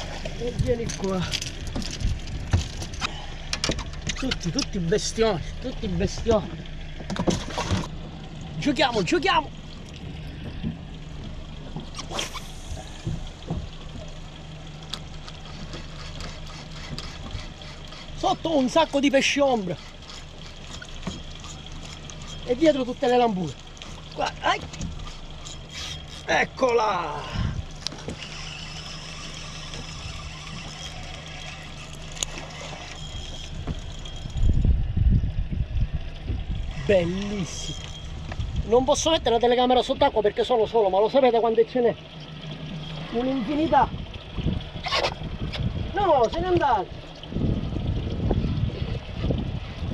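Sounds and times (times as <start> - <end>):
irregular low rumbles: 0.0 - 49.9
outboard motor idling: 0.0 - 49.9
water moving around hull: 0.0 - 49.9.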